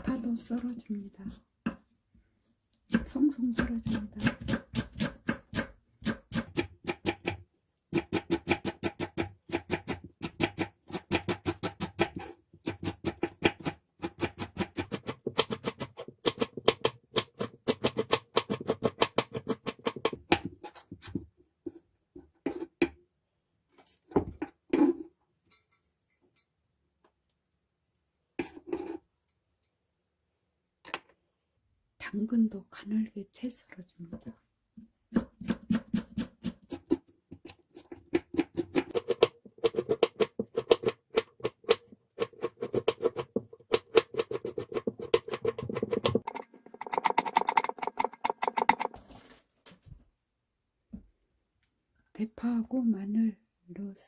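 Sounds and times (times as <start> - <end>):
knife chopping on wooden board: 35.1 - 48.9.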